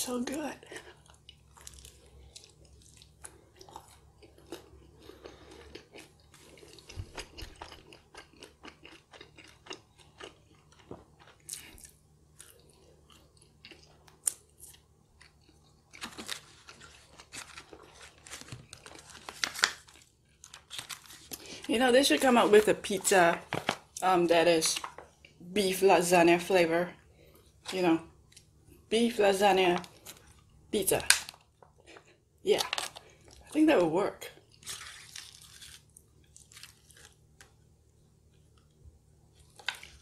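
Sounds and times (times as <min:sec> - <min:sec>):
chewing and crunching: 0:00.6 - 0:21.7, 0:34.3 - 0:40.0
fork rustling in foil tray: 0:16.0 - 0:21.8, 0:34.6 - 0:35.9.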